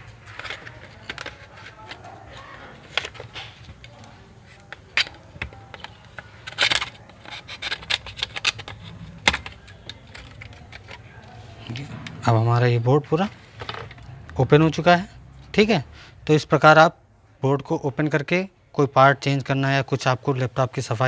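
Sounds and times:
plastic clips clicking and snapping: 2.9 - 11.0.

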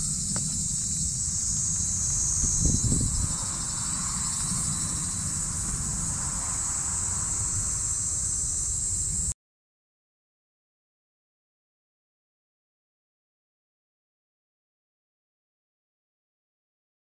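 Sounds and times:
brief louder low rumble: 0.0 - 9.4
high-pitched insect chorus: 0.0 - 9.4
low wind rumble: 0.0 - 9.4.

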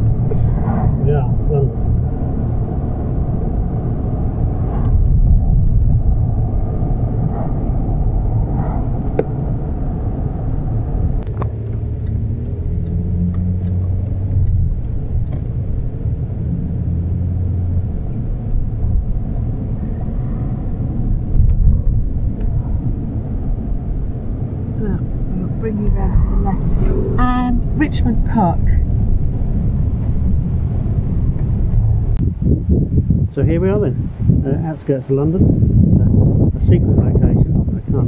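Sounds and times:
road noise inside cabin: 0.0 - 38.0
vehicle engine drone: 0.0 - 38.0.

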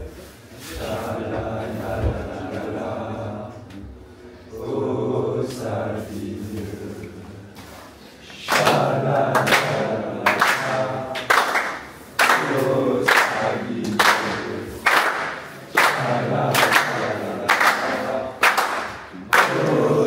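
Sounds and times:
players chanting in unison: 0.0 - 20.0
sharp clapping beat: 8.4 - 20.0.

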